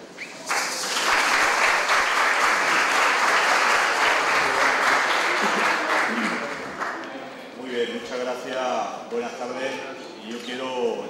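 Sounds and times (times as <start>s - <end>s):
audience applauding: 0.3s - 7.1s.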